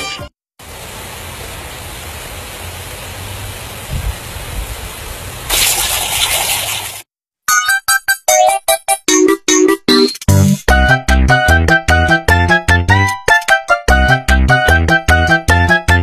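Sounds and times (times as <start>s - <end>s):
sprinkler spraying water hiss: 0.6s - 7.0s.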